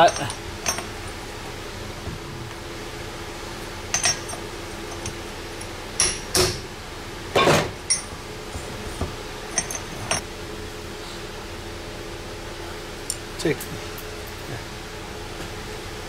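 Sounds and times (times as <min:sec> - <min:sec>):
metal clinks and knocks: 0:00.0 - 0:01.0, 0:03.9 - 0:06.6, 0:07.4 - 0:08.1, 0:09.5 - 0:10.2
steady low hum: 0:00.0 - 0:16.0.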